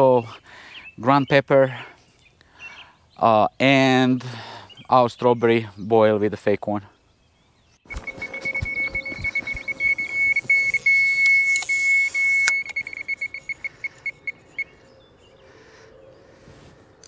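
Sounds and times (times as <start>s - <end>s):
bite alarm tone and beeps: 7.9s - 14.8s.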